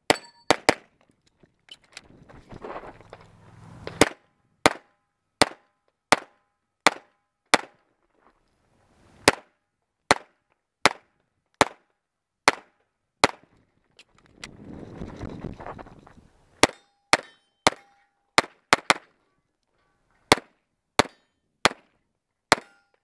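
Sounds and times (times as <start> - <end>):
pistol shots: 12.4 - 13.4.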